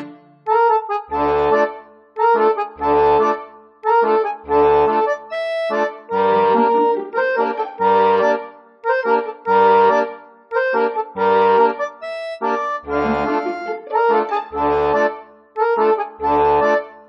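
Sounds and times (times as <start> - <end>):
sustained chords: 4.0 - 11.6, 12.6 - 15.1
low bass note: 12.9 - 14.0.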